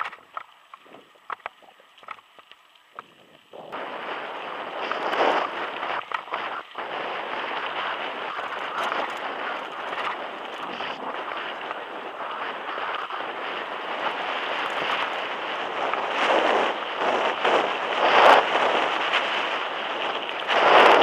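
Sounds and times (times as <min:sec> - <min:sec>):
bike tyres rolling on dirt: 0:00.0 - 0:21.0
wind rushing over microphone: 0:02.9 - 0:21.0.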